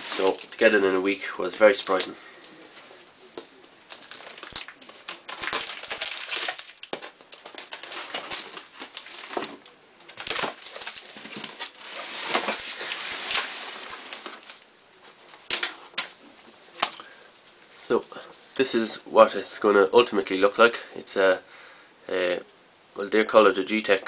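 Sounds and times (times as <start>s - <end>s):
cardboard scraping and rustling: 10.3s - 14.6s.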